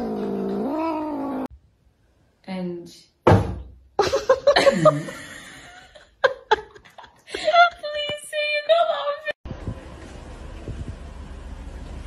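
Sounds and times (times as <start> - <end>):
person laughing: 4.0 - 7.8.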